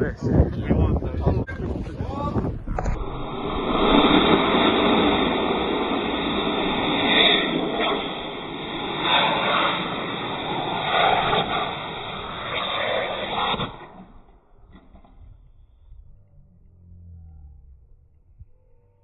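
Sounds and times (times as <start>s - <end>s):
wind on microphone: 0.0s - 16.5s
rocket motor rushing hiss: 2.8s - 14.0s.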